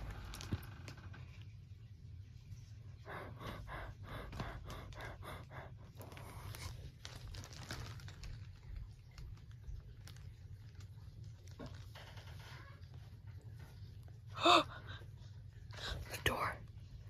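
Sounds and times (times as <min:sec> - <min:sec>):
quick rhythmic breathing: 0:02.9 - 0:06.9.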